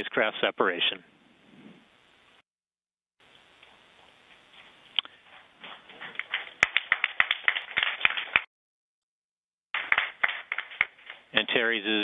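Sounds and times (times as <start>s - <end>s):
people clapping: 6.0s - 8.5s, 9.8s - 11.3s.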